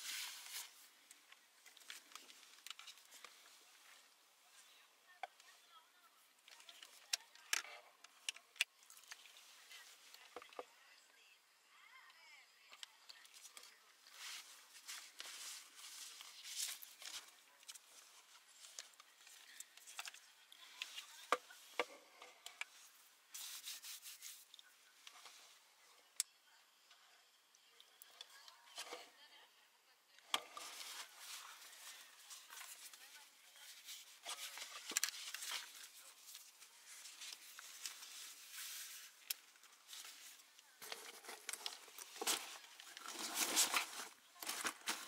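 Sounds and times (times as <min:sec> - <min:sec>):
rustling: 0:00.0 - 0:05.8, 0:13.4 - 0:25.6, 0:30.3 - 0:45.0.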